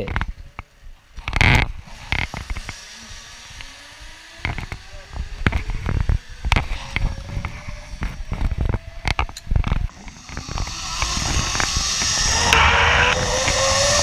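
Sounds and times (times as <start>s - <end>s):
pulley whine rising in pitch: 1.7s - 14.0s
rushing noise: 1.7s - 14.0s.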